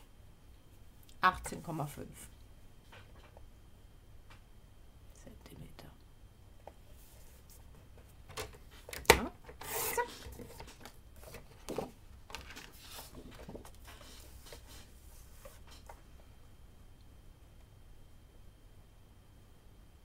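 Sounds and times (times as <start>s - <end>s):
card shuffling and rubbing: 9.5s - 16.0s.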